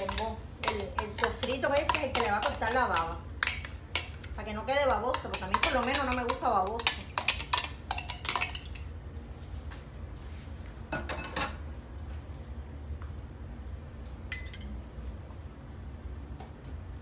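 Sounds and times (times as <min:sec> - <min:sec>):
dishes and utensils clinking: 0:14.3 - 0:14.8.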